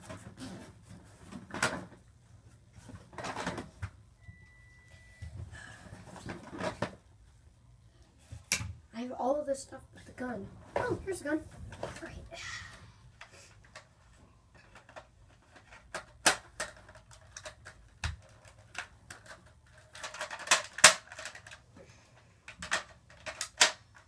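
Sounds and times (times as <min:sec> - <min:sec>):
hard plastic clicks and clacks: 0:14.6 - 0:21.6, 0:22.5 - 0:24.0.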